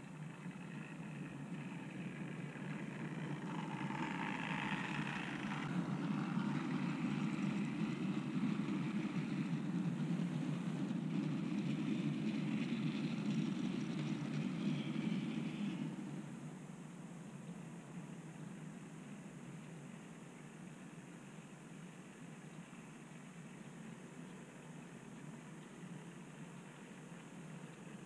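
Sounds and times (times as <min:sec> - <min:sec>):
locomotive whirr: 0:00.0 - 0:16.8
model train wheels rumbling: 0:00.0 - 0:16.8.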